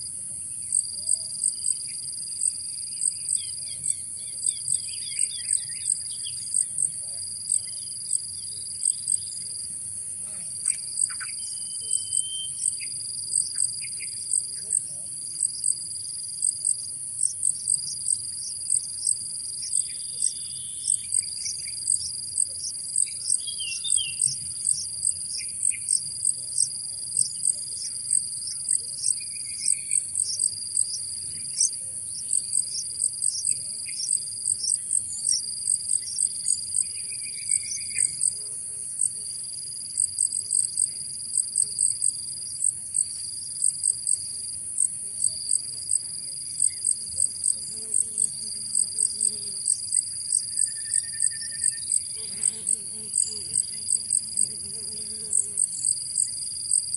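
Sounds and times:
insects chirping: 0.0 - 56.9
faint bird chirps: 10.7 - 12.9, 50.5 - 52.0.

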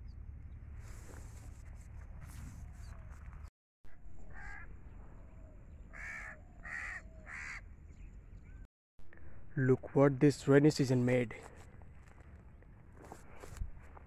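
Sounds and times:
crow cawing: 4.2 - 4.7, 5.9 - 7.6.

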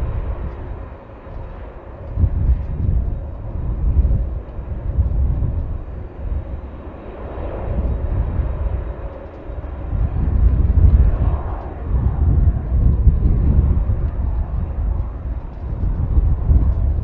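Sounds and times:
jet airliner engines running: 0.0 - 17.0
wind buffeting microphone: 0.0 - 17.0.

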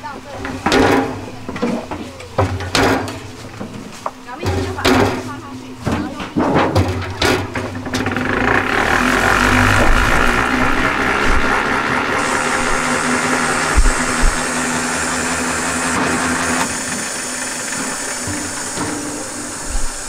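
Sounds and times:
honey extractor whirring: 0.0 - 20.0
high hiss: 8.6 - 20.0.

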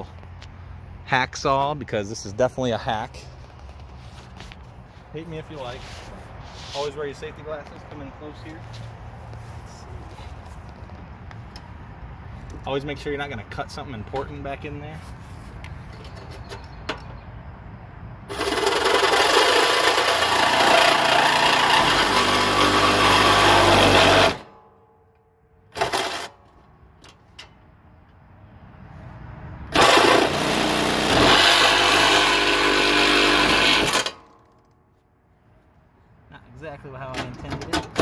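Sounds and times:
reciprocating saw cutting plastic: 18.3 - 24.5, 25.8 - 26.4, 29.8 - 34.2.

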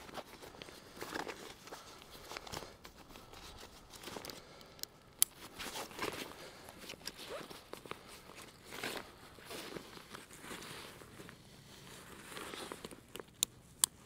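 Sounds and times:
fabric rustling: 0.0 - 4.6, 5.4 - 13.3
zipper pulls: 5.5 - 13.2.

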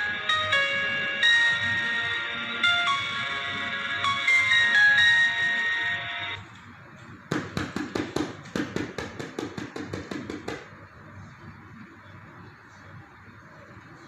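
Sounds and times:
bell-like music from phone speaker: 0.0 - 6.4.

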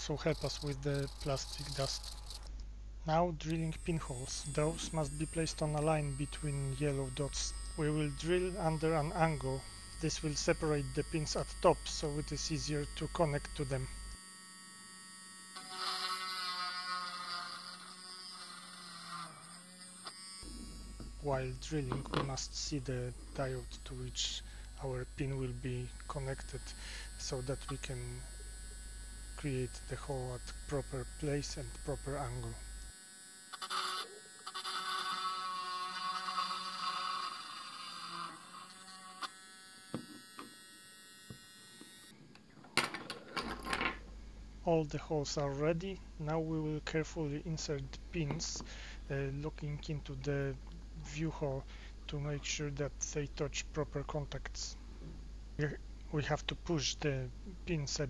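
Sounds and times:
electric drill drilling plastic: 0.3 - 2.5, 15.4 - 21.2, 26.0 - 42.1.

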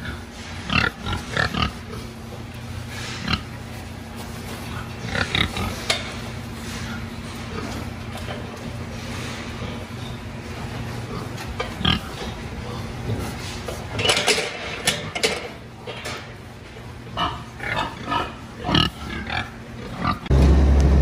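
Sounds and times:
steady low hum: 0.0 - 21.0
hogs squealing and grunting: 17.1 - 20.3.

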